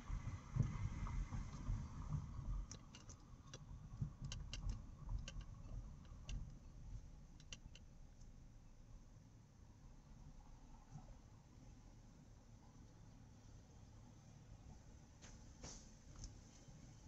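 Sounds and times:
road rumble inside car: 0.0s - 17.0s
light clicks and ticks: 2.6s - 6.6s, 7.4s - 8.4s.

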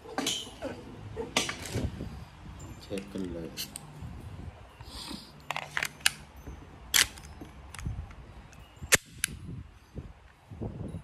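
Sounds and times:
pistol plastic and metal clicks: 6.9s - 8.2s, 8.9s - 9.4s.

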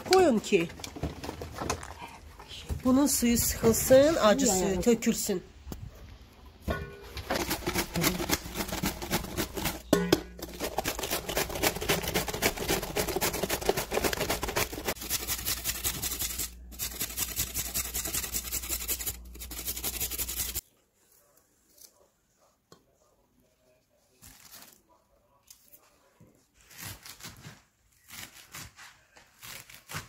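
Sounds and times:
vegetables rasping on a grater: 7.2s - 9.8s, 10.4s - 20.6s.

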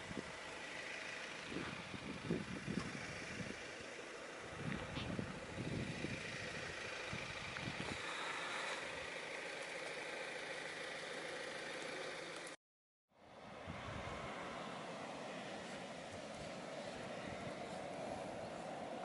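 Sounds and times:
low gusty rumbling: 1.4s - 3.7s, 4.4s - 8.0s, 13.4s - 19.0s.

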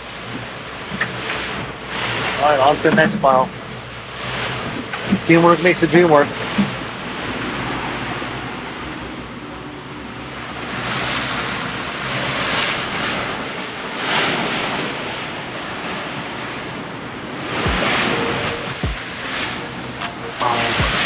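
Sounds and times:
sea water washing past boat: 0.0s - 21.0s
wind on microphone: 6.1s - 21.0s.

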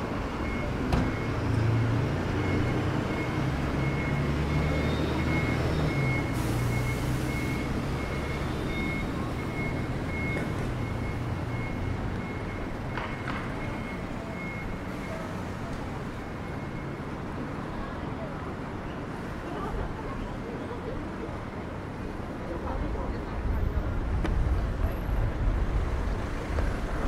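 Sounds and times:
heavy vehicle engine rumbling: 0.0s - 27.0s.

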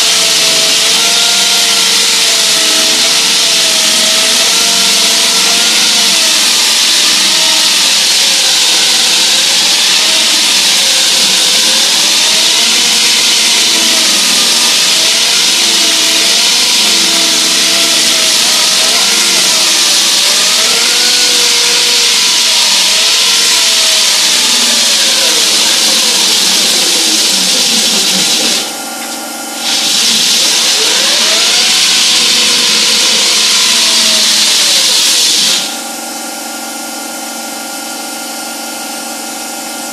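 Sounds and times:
steady machine hum: 0.0s - 39.9s
wall saw cutting concrete: 0.0s - 39.9s.

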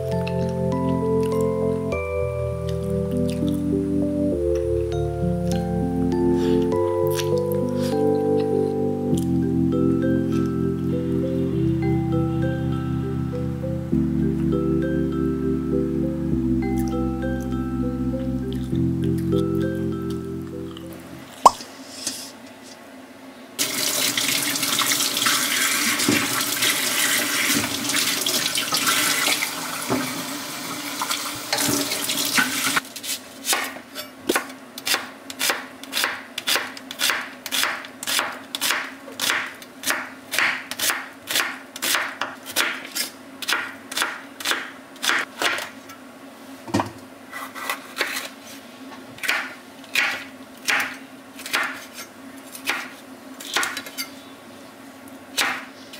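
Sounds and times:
tap water running into colander: 23.6s - 32.8s
knife chopping on wooden board: 33.5s - 45.7s.

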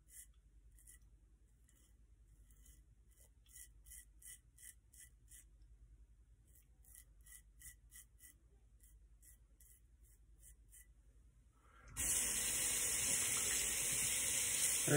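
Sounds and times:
razor scraping stubble: 0.0s - 5.5s, 6.4s - 11.0s.

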